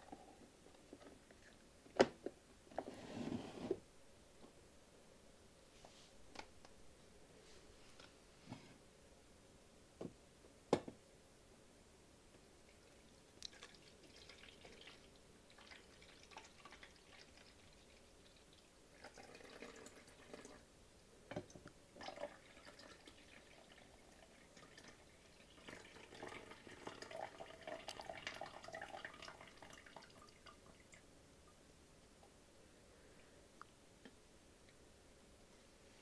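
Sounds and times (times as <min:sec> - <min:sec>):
water pouring into plastic reservoir: 0:12.7 - 0:20.6, 0:22.0 - 0:31.0.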